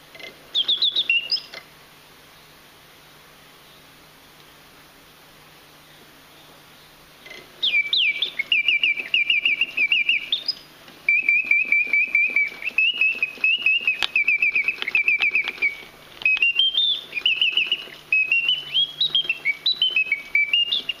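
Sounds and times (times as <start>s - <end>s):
mechanical bird whistling: 0.1s - 1.6s, 7.2s - 21.0s.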